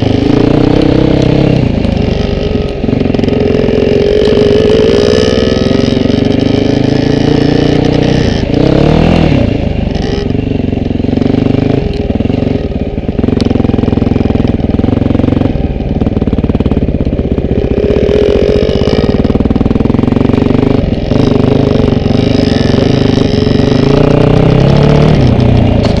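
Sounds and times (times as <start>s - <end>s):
two-stroke motorbike engine revving: 0.0s - 26.0s.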